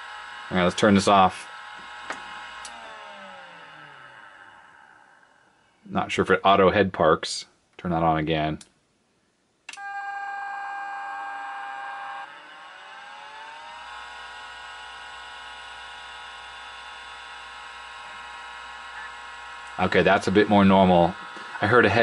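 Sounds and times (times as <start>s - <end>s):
hard drive spindle whine: 0.0s - 5.6s, 9.7s - 22.0s
steady tone: 0.0s - 6.1s.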